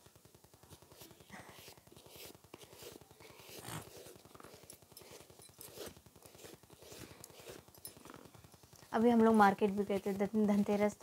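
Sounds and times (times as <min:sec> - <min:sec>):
faint rustling and scraping: 0:00.2 - 0:11.0.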